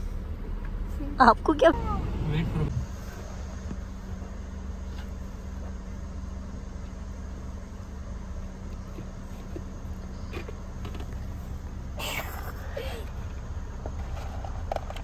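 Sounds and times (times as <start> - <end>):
car idling from inside: 0.0 - 15.0.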